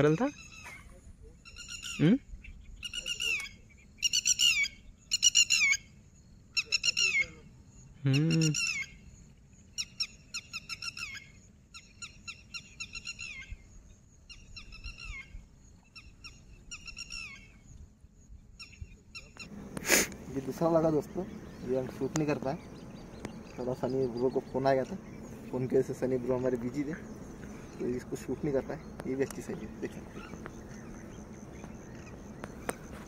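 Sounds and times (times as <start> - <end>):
bird calling harsh notes: 8.0 - 9.1, 18.6 - 33.0.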